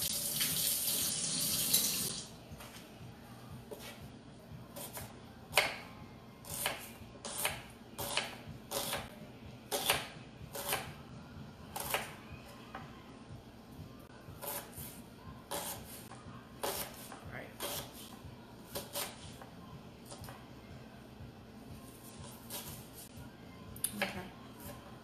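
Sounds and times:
knife chopping on wooden board: 0:09.7 - 0:10.9.

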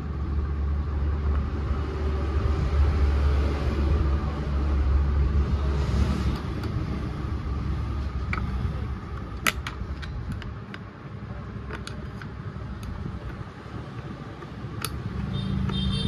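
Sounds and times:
metal tool clicking on chainsaw: 0:14.8 - 0:15.8.

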